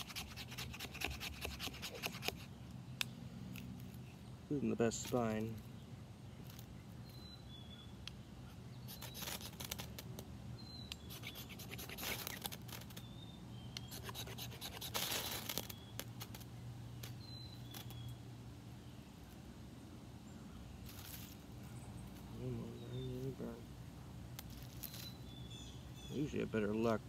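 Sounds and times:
knife scraping ferrocerium rod: 0.0 - 2.5, 8.9 - 10.1, 10.9 - 13.0, 13.8 - 18.0.

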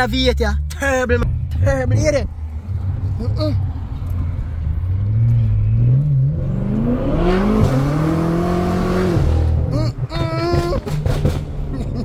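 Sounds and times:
car engine accelerating hard: 1.4 - 9.9.

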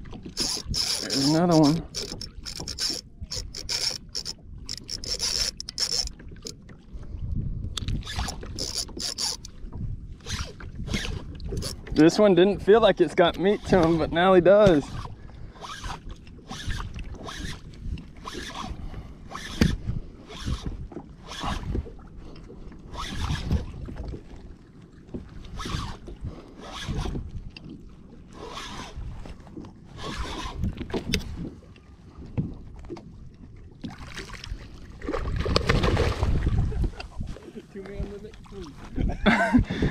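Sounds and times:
water against hull: 0.0 - 39.9
wind: 0.0 - 39.9
fishing reel cranking: 0.2 - 6.6, 7.8 - 9.5, 10.2 - 12.1, 14.8 - 21.8, 22.9 - 23.6, 25.6 - 27.2, 28.4 - 29.0, 29.9 - 31.2.

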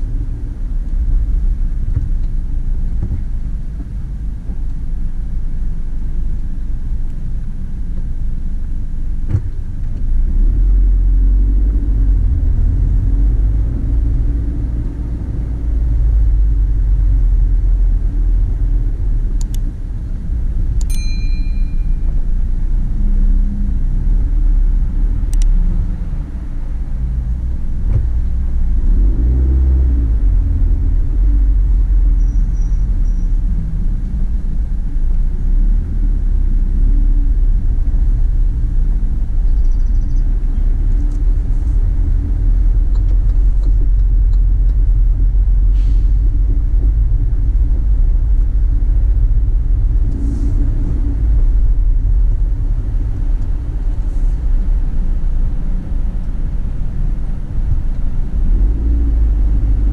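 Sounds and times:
car engine and tyres rumbling: 0.0 - 59.9
short high ring: 20.9 - 22.2.

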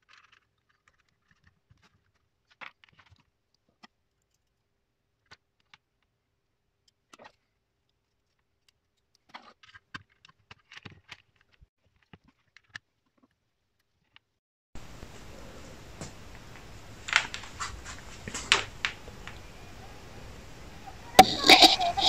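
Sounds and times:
faint steady hum: 14.8 - 22.0.

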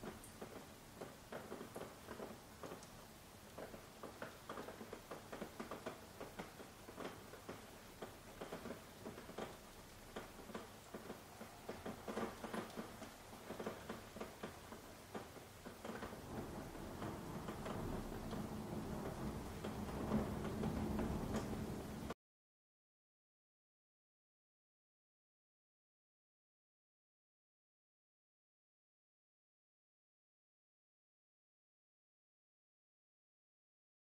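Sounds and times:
rain tapping on window glass: 0.0 - 22.2.

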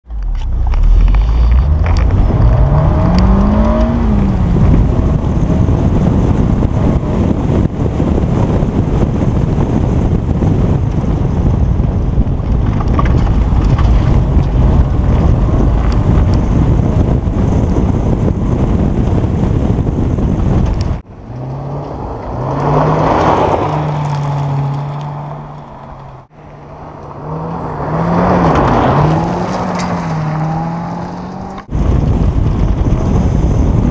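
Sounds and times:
road rumble: 0.0 - 33.9
wind noise: 0.1 - 33.9
car engine revving hard: 1.8 - 7.3, 21.2 - 25.6, 26.8 - 31.7
car sliding on gravel: 21.2 - 31.7.

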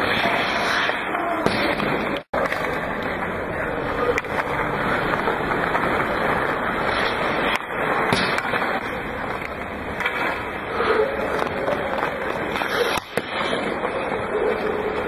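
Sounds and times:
pucks being shot and struck: 0.0 - 2.8, 6.9 - 10.4, 11.2 - 13.9
noisy rink background: 0.0 - 15.0
skates scraping on ice: 0.0 - 15.0.

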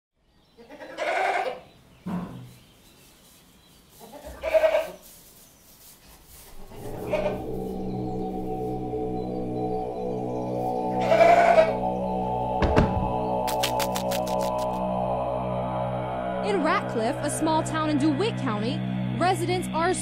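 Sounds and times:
goat bleating: 0.6 - 1.6, 4.0 - 5.0, 11.0 - 11.8
steady sustained music: 6.5 - 20.0.

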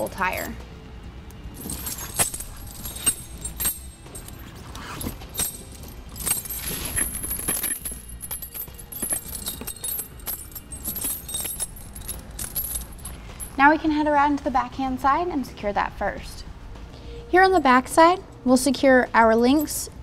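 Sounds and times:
tire chains clinking and rattling: 1.5 - 14.1.

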